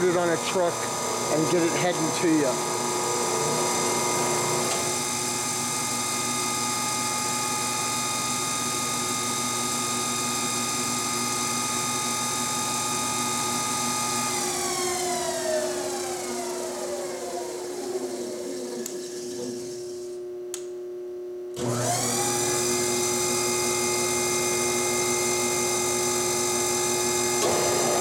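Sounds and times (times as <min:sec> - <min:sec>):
electric motor whining: 0:25.5 - 0:28.0.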